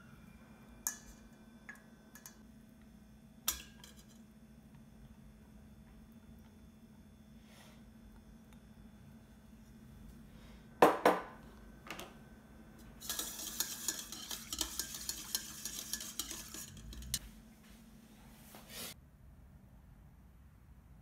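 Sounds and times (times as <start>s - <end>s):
whisk clicking and scraping bowl: 13.0s - 17.2s
whisk clinking on metal bowl: 13.0s - 17.2s.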